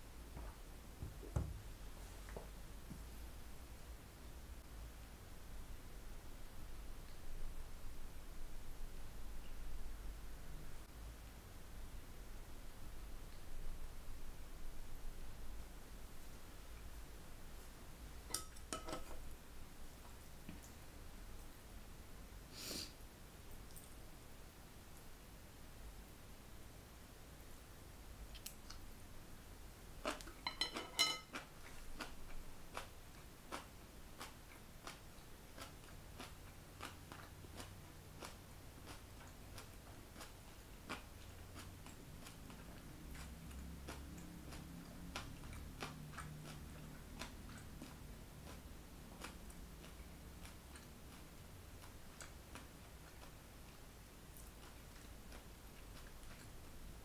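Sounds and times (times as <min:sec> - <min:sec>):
faint low hum: 0:00.0 - 0:57.0
chopsticks clattering on ceramic bowl: 0:18.3 - 0:19.2, 0:30.4 - 0:31.4.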